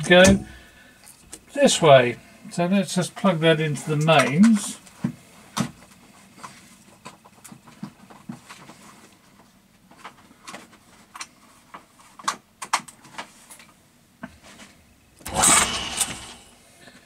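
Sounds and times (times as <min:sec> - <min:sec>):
motor switching on rush: 0:15.2 - 0:16.6.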